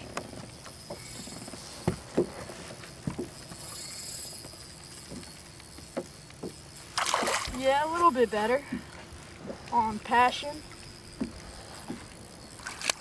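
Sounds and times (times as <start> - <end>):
steady background hiss: 0.0 - 13.0
knocks and thumps on boat: 0.9 - 3.4.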